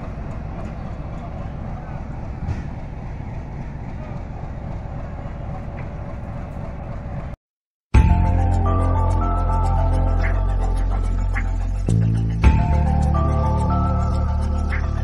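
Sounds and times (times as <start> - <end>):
train coaches rumbling: 0.0 - 7.4
music: 8.0 - 15.0.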